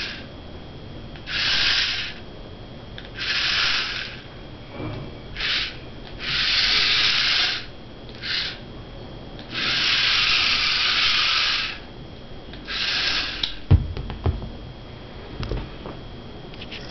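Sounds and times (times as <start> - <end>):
toy car gear motors whirring: 0.0 - 0.2, 1.2 - 2.2, 3.1 - 4.2, 5.4 - 8.6, 9.5 - 11.8, 12.6 - 13.6
sharp thump: 13.7 - 14.6.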